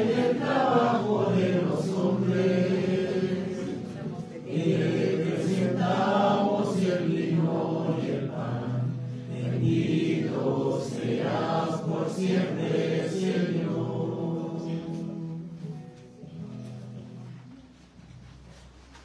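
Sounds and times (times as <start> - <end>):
congregation singing a hymn: 0.0 - 16.8.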